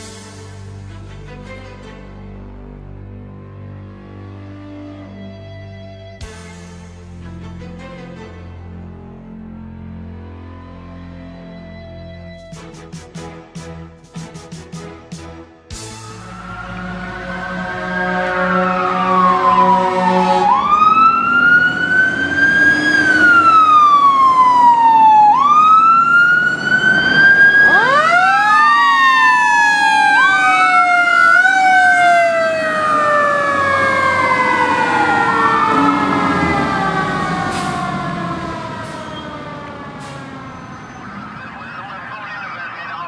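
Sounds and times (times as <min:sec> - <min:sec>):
fire engine sirens wailing: 0:15.8 - 0:43.0.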